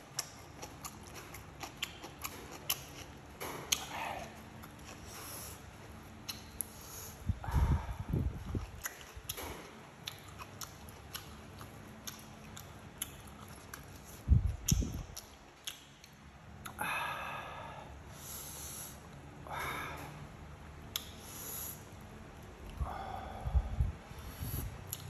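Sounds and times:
wet mouth clicks while chewing: 0:00.0 - 0:05.4, 0:06.2 - 0:06.7, 0:07.6 - 0:16.8, 0:20.9 - 0:21.2, 0:24.5 - 0:25.0
sniffs through the nose: 0:05.0 - 0:05.7, 0:06.6 - 0:08.2, 0:18.1 - 0:19.1, 0:21.2 - 0:21.9, 0:24.2 - 0:24.9
soft low thumps: 0:07.3 - 0:08.7.

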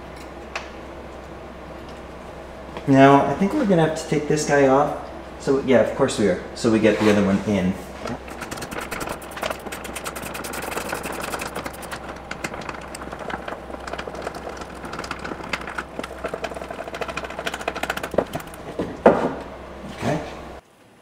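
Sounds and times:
hand tool clicking and rattling: 0:08.2 - 0:18.7.

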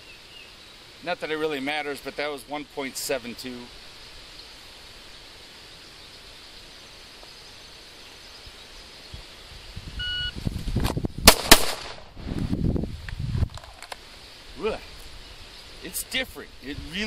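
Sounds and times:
shot timer beep: 0:10.0 - 0:10.3
pistol shots: 0:11.3 - 0:12.1.

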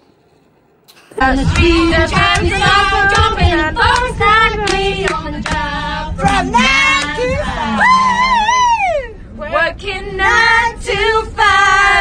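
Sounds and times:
woman singing into microphone: 0:01.2 - 0:08.6
heavy low rumble: 0:01.2 - 0:12.0.

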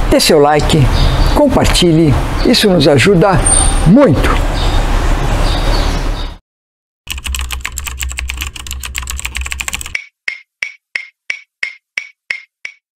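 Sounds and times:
rapid dense clicks: 0:07.1 - 0:10.0
sharp ticks: 0:07.1 - 0:12.8.

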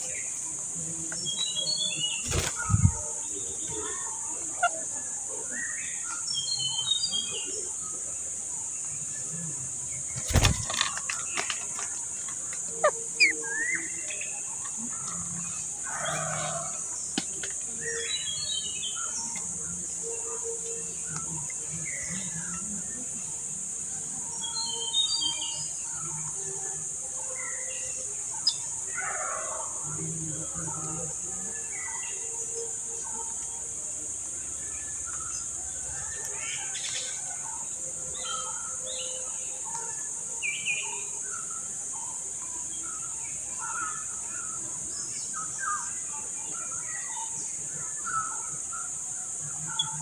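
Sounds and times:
bird chirps: 0:12.6 - 0:14.8.

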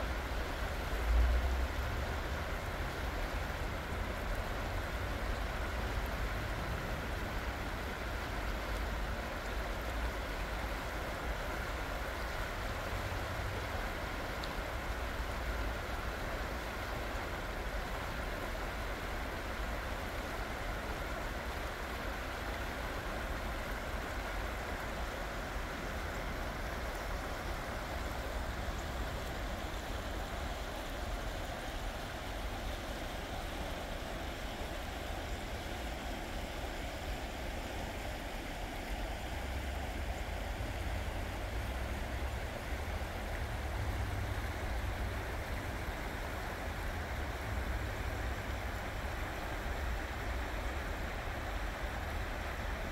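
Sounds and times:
water rushing over rocks: 0:00.0 - 0:52.9.

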